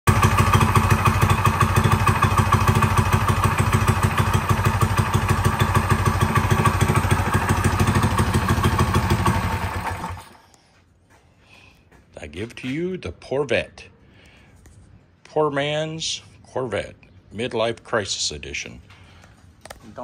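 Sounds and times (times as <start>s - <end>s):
small engine idling: 0.1s - 10.5s.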